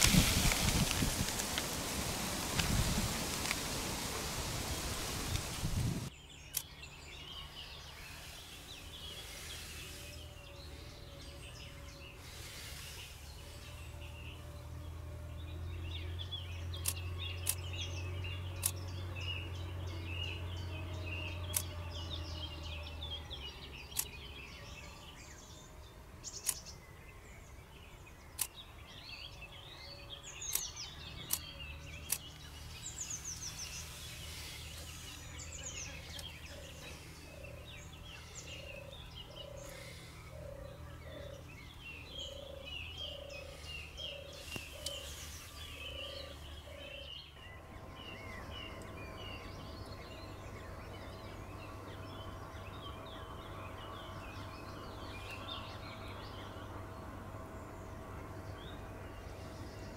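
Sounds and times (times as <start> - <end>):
low steady rumble: 0.0 - 59.9
small birds chirping: 0.0 - 59.9
sharp ticks: 16.8 - 17.6, 18.6 - 18.8, 30.5 - 32.4.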